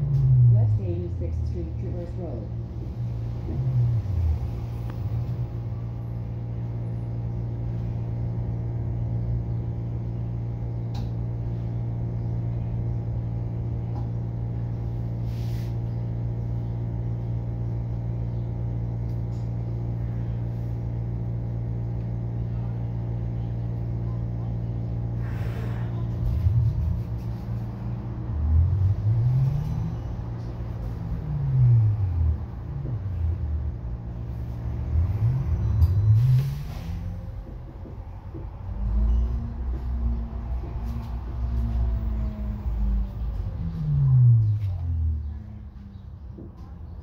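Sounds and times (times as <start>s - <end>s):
bus interior hum: 0.0s - 47.0s.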